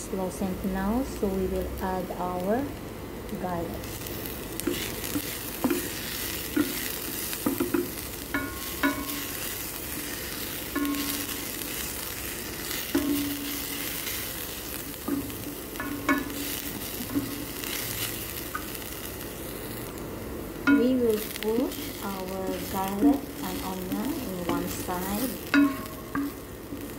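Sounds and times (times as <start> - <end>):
onion sizzling in oil: 0.0 - 26.9.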